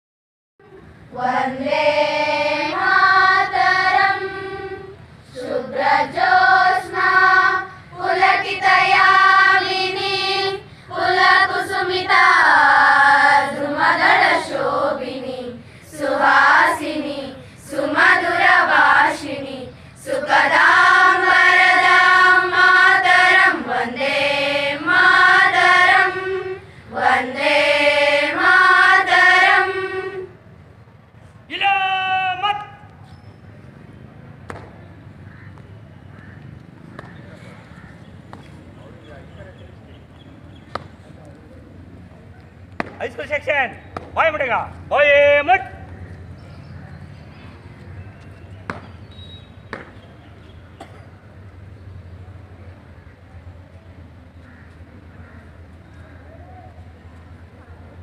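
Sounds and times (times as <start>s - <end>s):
girls choir singing: 1.1s - 30.4s.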